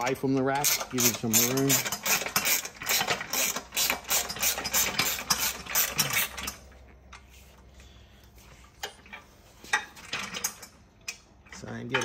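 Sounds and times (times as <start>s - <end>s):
ratchet wrench clicking: 0.1s - 6.6s.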